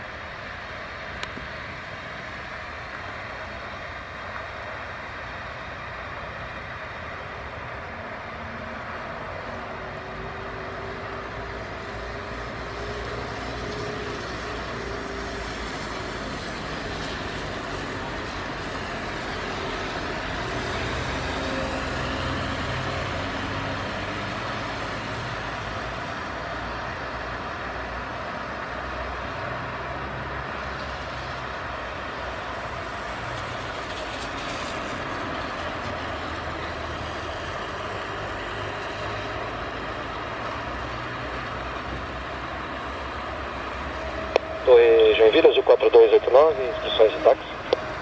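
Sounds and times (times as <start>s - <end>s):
jet engines running: 43.7s - 48.0s.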